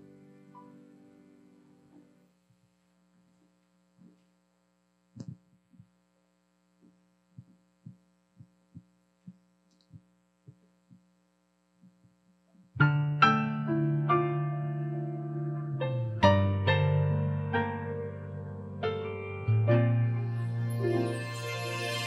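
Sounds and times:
piano chords: 0.0s - 2.2s, 12.8s - 22.0s
faint steady hum: 0.0s - 12.9s.

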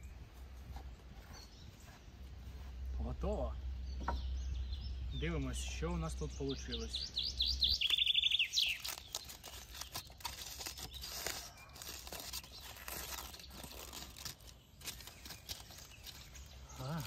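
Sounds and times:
bird chirping and trilling: 2.9s - 17.0s
aluminium foil crinkling: 7.8s - 17.0s.

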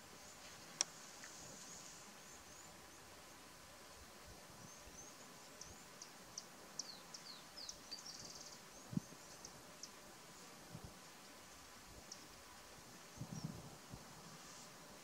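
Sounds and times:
quiet bush ambience: 0.0s - 15.0s
birdsong chirps and whistles: 4.6s - 10.0s.

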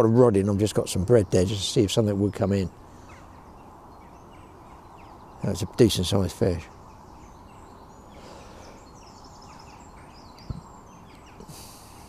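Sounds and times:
faint birdsong: 0.0s - 12.0s
brief hiss: 11.4s - 12.0s.

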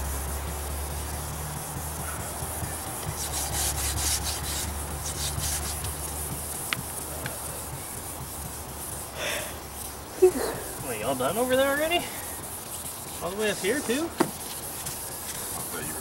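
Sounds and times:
sanding pad rubbing on paint: 0.0s - 16.0s
sharp ticks: 0.1s - 10.1s.

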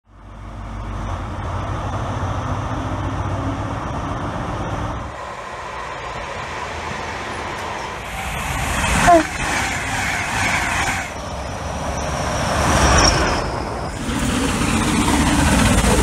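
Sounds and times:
diesel engine drone: 0.1s - 16.0s
electric train rushing past: 0.3s - 16.0s.

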